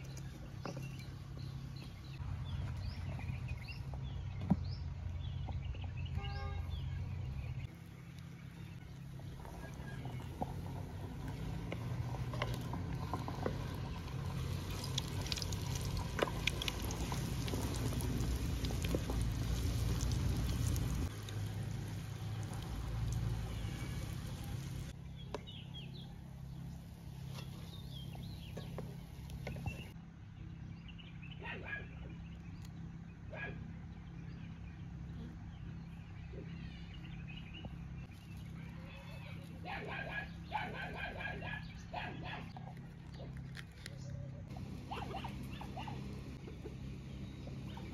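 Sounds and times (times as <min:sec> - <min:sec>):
birds chirping: 0:00.0 - 0:47.9
donuts sizzling in oil: 0:13.5 - 0:25.0.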